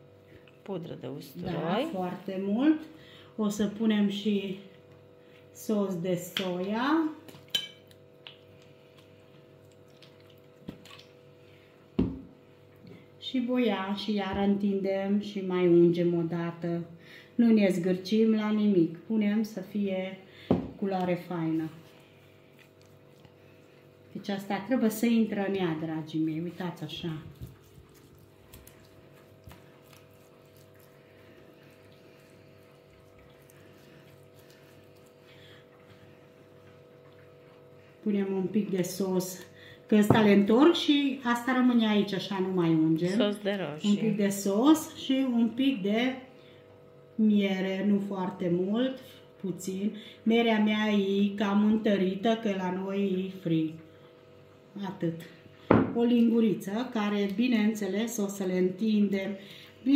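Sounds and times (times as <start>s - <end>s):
low electrical hum: 0.0s - 59.9s
pastry brush dabbing wetly: 26.5s - 36.2s.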